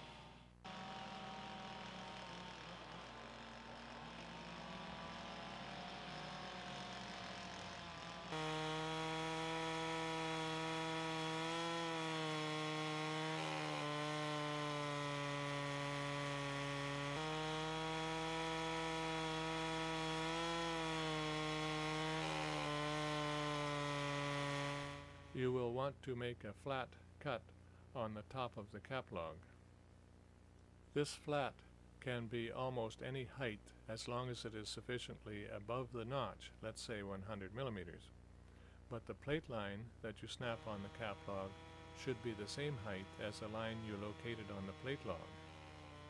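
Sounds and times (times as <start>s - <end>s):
quieter engine running: 0.0s - 25.4s, 40.4s - 46.0s
chainsaw cutting log: 0.0s - 25.5s, 40.1s - 46.0s.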